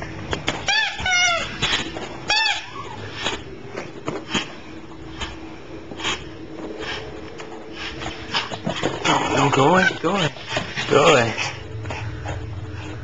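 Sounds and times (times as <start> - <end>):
steady low hum: 0.0 - 13.0
squeaky dog toy: 0.6 - 3.0, 9.7 - 10.2.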